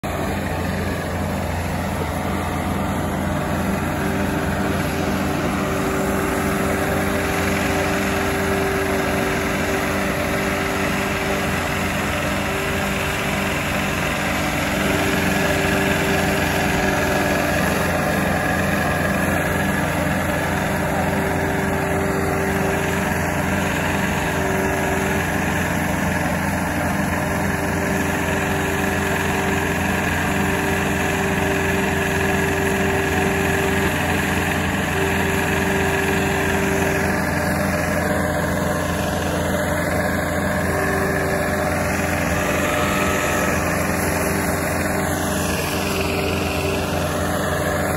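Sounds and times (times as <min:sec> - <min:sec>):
small engine running steadily: 0:00.0 - 0:47.9
higher machine tone: 0:35.1 - 0:47.9.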